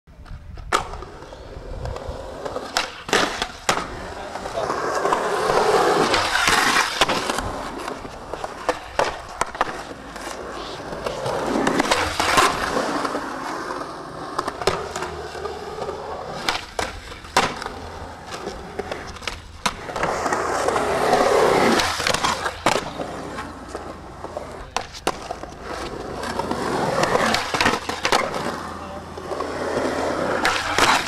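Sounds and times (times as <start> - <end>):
skateboard wheels rolling on concrete: 0.1 - 31.0
skateboard clacking on ground: 0.2 - 31.0.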